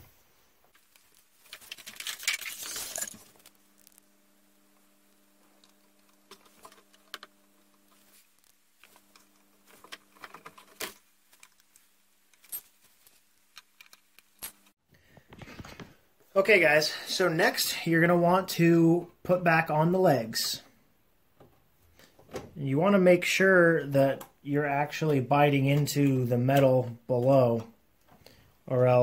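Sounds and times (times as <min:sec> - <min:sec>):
rustling: 0:00.0 - 0:16.3
faint steady hum: 0:00.0 - 0:28.8
metal screws clinking on wood: 0:01.5 - 0:03.5.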